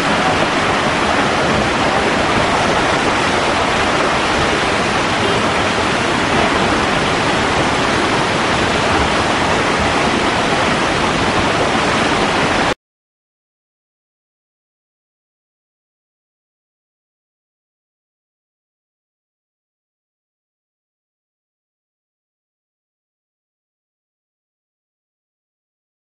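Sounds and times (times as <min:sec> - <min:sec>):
river water rushing: 0:00.0 - 0:12.8.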